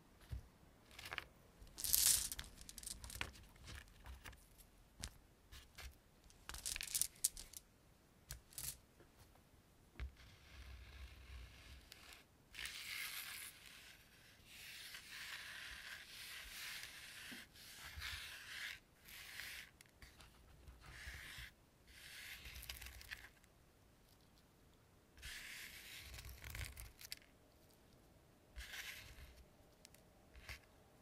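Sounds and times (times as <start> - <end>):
scratching and rubbing on object: 10.2 - 23.3, 25.2 - 27.0, 28.6 - 29.4.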